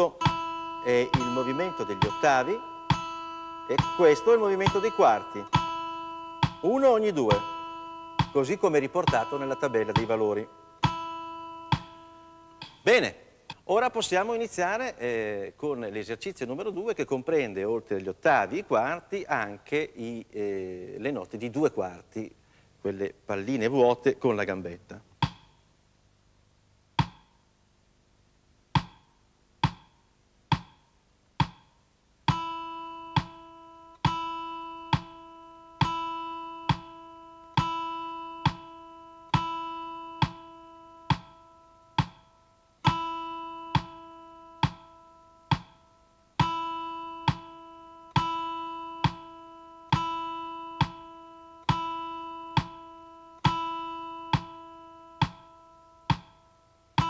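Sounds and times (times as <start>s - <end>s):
acoustic guitar string picked: 0.0s - 13.0s
metronome ticking: 0.0s - 13.6s, 25.2s - 25.6s, 26.9s - 27.4s, 28.7s - 57.0s.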